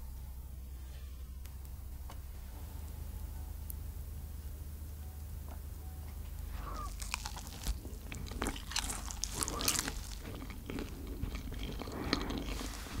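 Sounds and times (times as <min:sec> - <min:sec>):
crunchy biting and chewing: 0:06.5 - 0:13.0.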